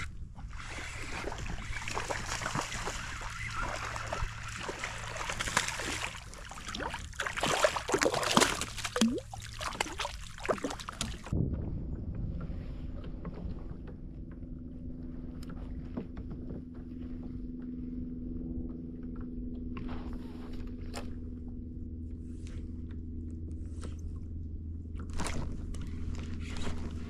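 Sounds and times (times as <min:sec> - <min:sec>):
water splashing on hull: 0:00.0 - 0:11.4.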